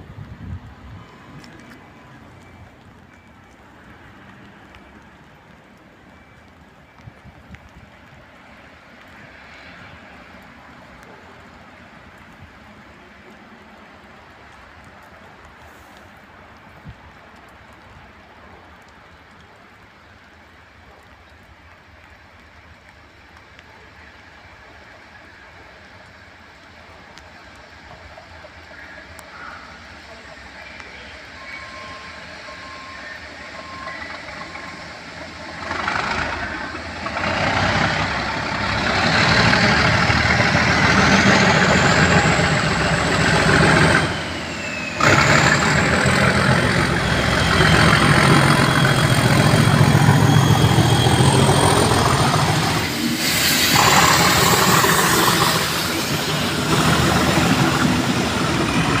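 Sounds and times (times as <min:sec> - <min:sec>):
diesel locomotive engine rumble: 0:00.0 - 0:59.0
thin high whistle: 0:30.6 - 0:34.9, 0:43.8 - 0:56.4.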